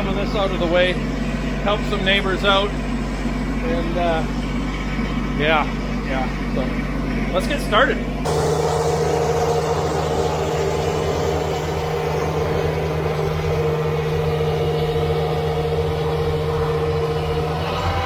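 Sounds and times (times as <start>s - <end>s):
tractor diesel engine drone: 0.0s - 18.0s
snowblower whine: 8.2s - 18.0s.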